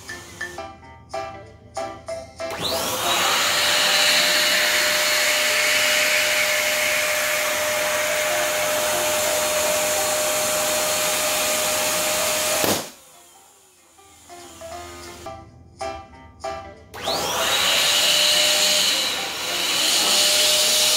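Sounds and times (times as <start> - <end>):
electric balloon pump motor humming: 0.0 - 0.8, 2.5 - 15.3, 17.0 - 20.9
balloon bursting bang: 12.6 - 13.0.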